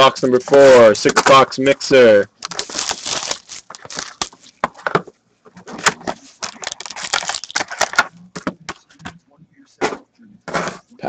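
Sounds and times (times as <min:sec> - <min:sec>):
card packs crinkling and rustling: 0:02.4 - 0:05.0, 0:05.7 - 0:08.1.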